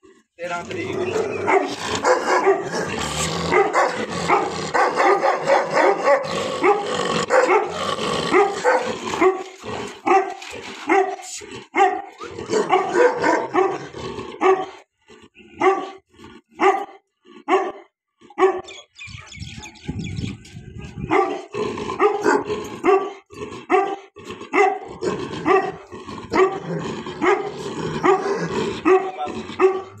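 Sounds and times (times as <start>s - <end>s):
dog barking: 1.1s - 2.9s, 3.5s - 14.8s, 15.6s - 16.0s, 16.6s - 18.8s, 21.0s - 30.0s.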